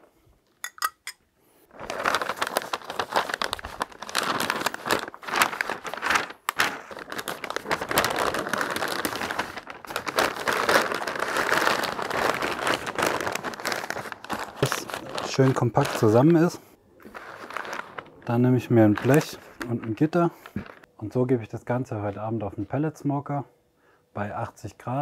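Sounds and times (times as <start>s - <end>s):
stiff paper crinkling: 1.7s - 20.9s.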